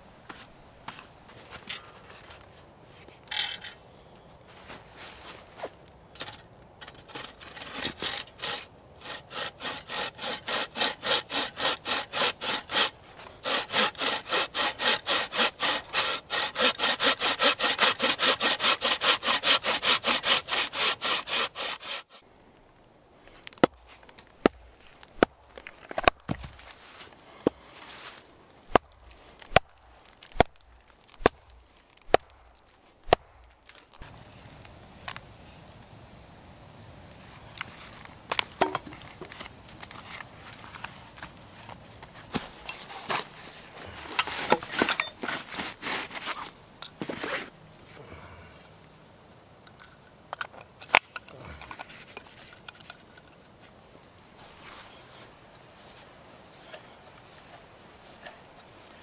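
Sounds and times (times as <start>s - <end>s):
bucksaw rasping through log: 6.8s - 22.2s, 42.3s - 47.5s.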